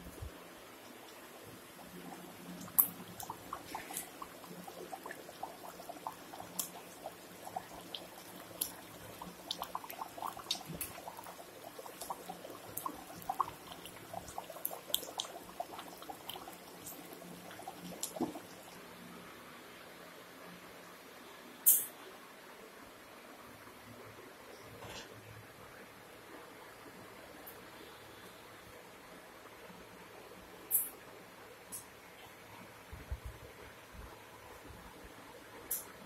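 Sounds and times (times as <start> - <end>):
curry bubbling and popping: 0.0 - 19.0.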